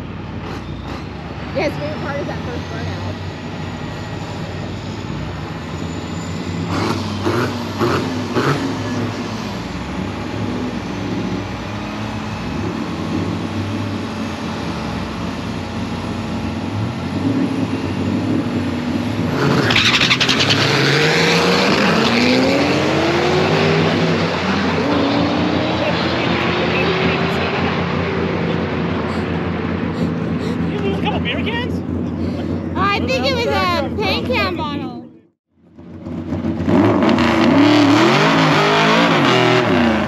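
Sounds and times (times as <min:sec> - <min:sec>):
race car engine running: 0:00.0 - 0:40.0
car accelerating away: 0:05.7 - 0:34.5, 0:35.8 - 0:40.0.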